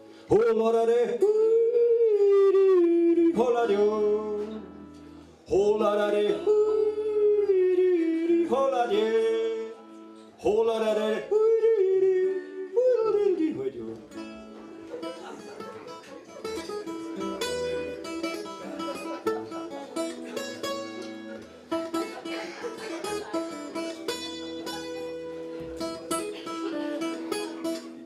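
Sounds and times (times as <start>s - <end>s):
acoustic guitar playing: 0.0s - 28.0s.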